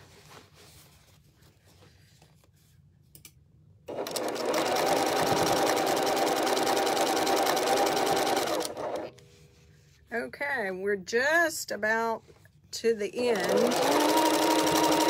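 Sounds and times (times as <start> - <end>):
electric sewing machine stitching: 3.9 - 9.1, 13.2 - 15.0.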